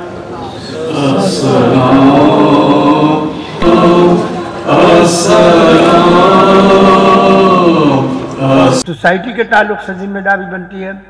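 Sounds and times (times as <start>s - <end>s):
man chanting: 4.7s - 9.0s.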